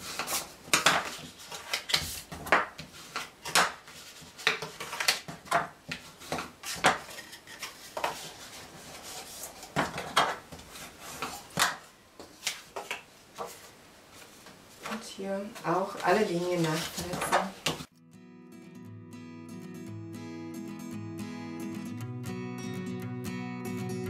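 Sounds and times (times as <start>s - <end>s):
paper rubbing scrapes: 6.3s - 9.8s.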